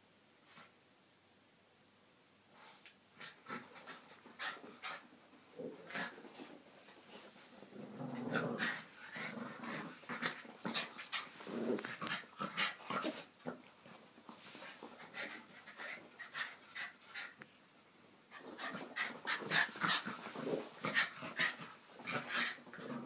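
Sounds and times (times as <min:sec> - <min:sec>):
small dogs growling: 0:03.2 - 0:13.7, 0:18.4 - 0:23.0.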